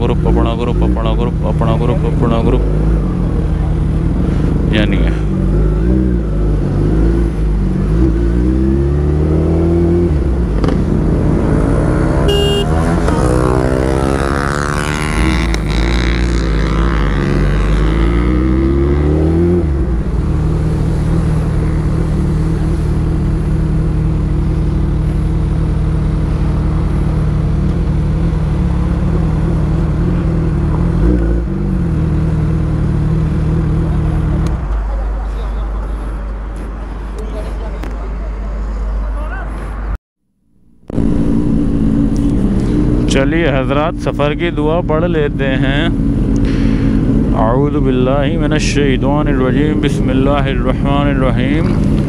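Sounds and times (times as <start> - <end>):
motorcycle engine accelerating: 0.0 - 34.8, 40.6 - 52.0
short high beep: 12.3 - 12.7.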